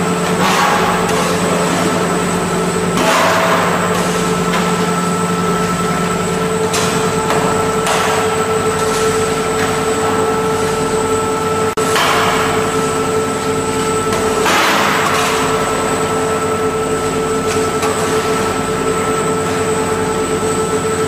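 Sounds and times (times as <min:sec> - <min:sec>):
machinery hum: 0:00.0 - 0:21.0.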